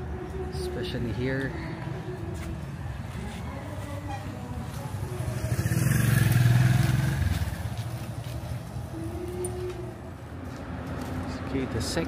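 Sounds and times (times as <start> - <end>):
motorcycle passing by: 4.4 - 9.6.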